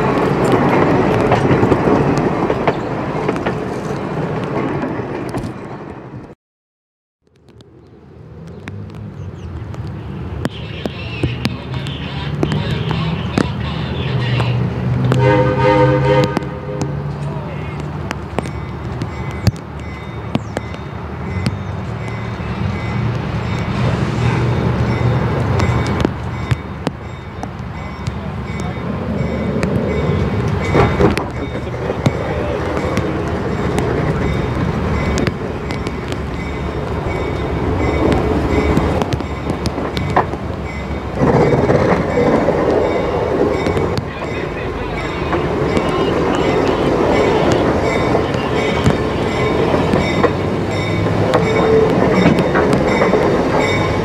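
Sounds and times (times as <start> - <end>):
train wheels rumbling on rails: 0.0 - 6.4, 8.3 - 54.0
distant diesel locomotive drone: 7.5 - 54.0.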